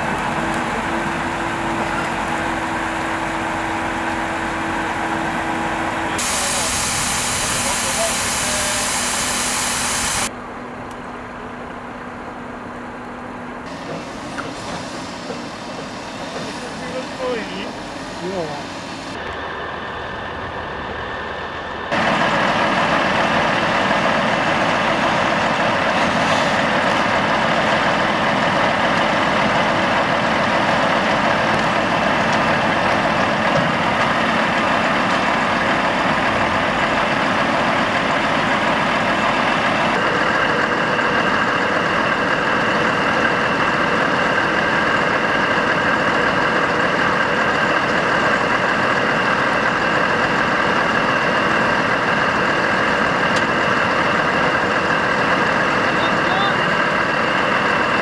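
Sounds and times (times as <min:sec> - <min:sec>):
high whine: 0:00.0 - 0:12.8
diesel engine running: 0:00.0 - 0:58.0.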